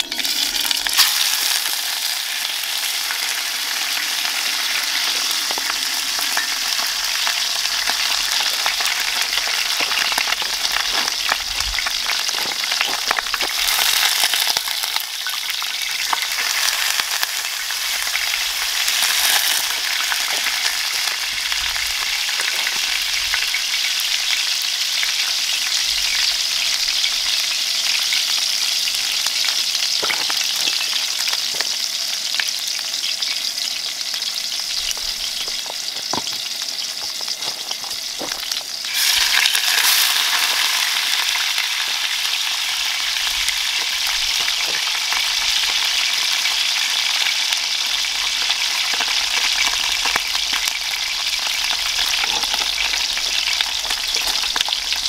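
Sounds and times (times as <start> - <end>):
oil sizzling in a pan: 0.0 - 55.0.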